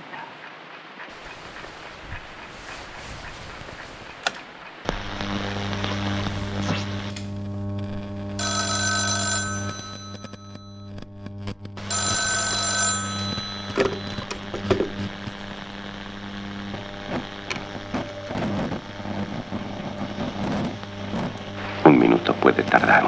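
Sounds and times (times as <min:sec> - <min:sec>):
low steady hum: 0:01.2 - 0:23.0
click: 0:04.2 - 0:05.0, 0:07.0 - 0:07.3
telephone bell ringing: 0:08.4 - 0:10.9, 0:11.8 - 0:15.6.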